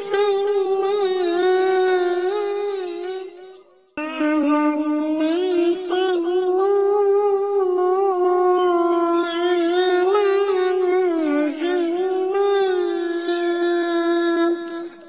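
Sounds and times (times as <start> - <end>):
person singing unaccompanied: 0.0 - 15.0.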